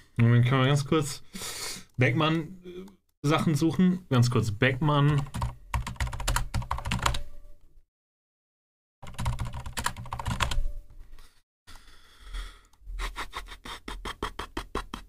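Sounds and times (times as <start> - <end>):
computer keyboard typing: 5.1 - 7.3, 9.0 - 10.7.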